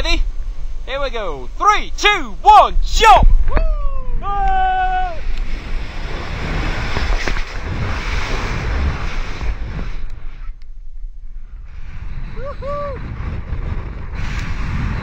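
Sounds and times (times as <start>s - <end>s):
wind buffeting microphone: 0.0s - 15.0s
person whooping: 3.5s - 5.3s, 12.3s - 13.1s.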